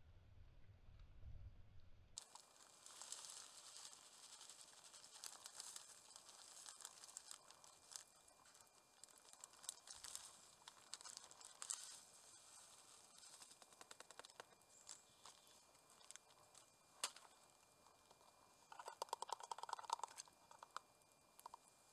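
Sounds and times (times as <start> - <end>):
dry food shaken into mug: 2.2 - 17.3, 18.7 - 20.8
plastic bag crinkling: 2.2 - 20.8.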